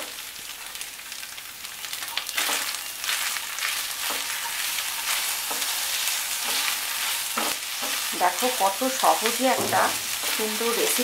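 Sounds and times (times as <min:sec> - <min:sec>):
vegetables sizzling in oil: 0:00.0 - 0:11.0
spatula stirring in pan: 0:02.4 - 0:11.0.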